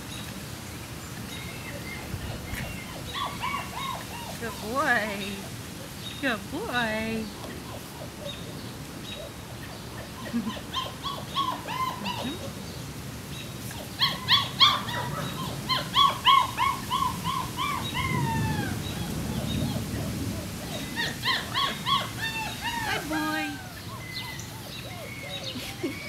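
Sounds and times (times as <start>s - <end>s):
puppy yipping: 2.3s - 4.4s, 9.1s - 12.5s, 13.7s - 26.0s.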